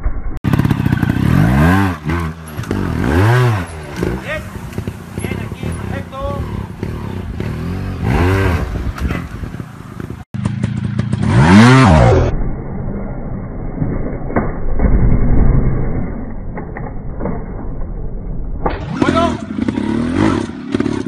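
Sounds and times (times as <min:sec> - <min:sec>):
motorcycle engine revving: 0:00.4 - 0:13.4, 0:18.7 - 0:21.0.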